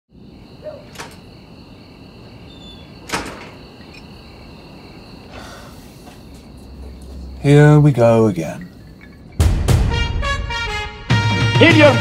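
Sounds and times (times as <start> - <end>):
crickets chirping: 0.1 - 9.7.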